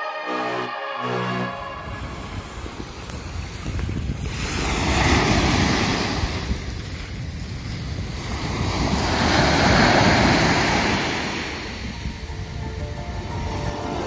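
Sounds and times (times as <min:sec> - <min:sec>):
wind buffeting microphone: 0:01.7 - 0:14.0
surf breaking on beach: 0:02.1 - 0:12.3.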